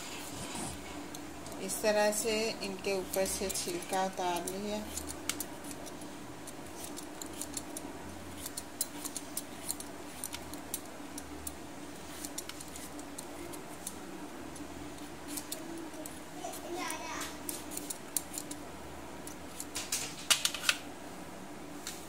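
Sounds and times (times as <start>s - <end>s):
low steady hum: 0.0s - 22.0s
peeler scraping vegetable skin: 12.0s - 13.7s, 15.2s - 16.8s, 17.4s - 18.6s.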